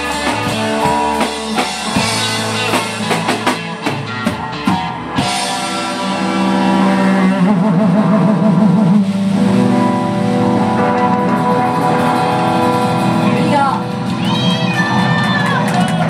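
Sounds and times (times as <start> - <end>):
distorted electric guitars: 0.0 - 16.0
drum kit playing: 0.0 - 16.0.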